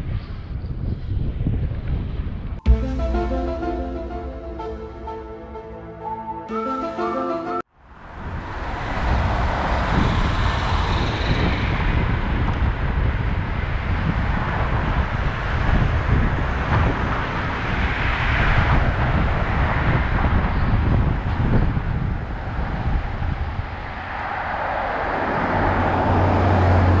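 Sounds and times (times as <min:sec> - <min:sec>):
wind rumbling on microphone: 0:00.0 - 0:02.6, 0:08.0 - 0:27.0
car traffic: 0:24.0 - 0:27.0.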